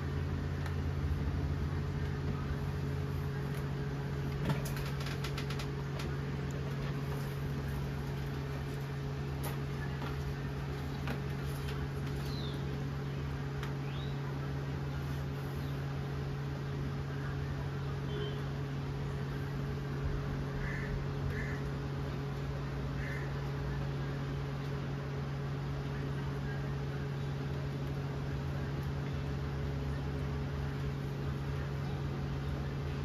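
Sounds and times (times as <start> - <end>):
low machine hum: 0.0 - 33.0
faint bird chirps: 17.2 - 18.6.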